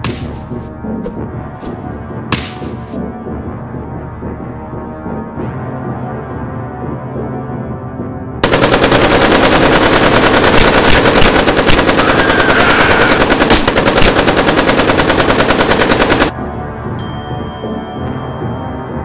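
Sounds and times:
automatic gunfire: 8.4s - 16.3s.

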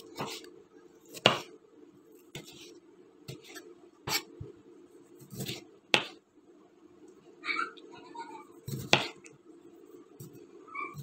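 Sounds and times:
knife slicing tomatoes: 0.0s - 1.6s, 5.2s - 6.2s, 8.6s - 9.3s.

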